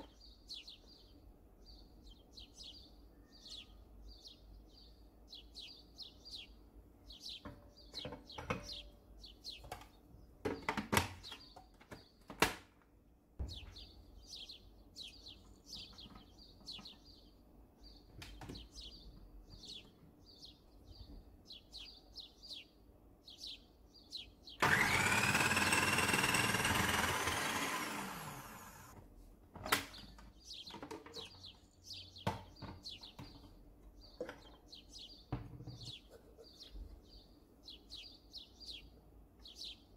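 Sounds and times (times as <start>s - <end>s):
bird chirping: 0.0s - 12.3s, 13.4s - 28.9s, 29.6s - 39.9s
plastic parts clicking and knocking: 9.6s - 12.9s, 29.5s - 31.5s
food processor motor whining: 24.6s - 29.0s.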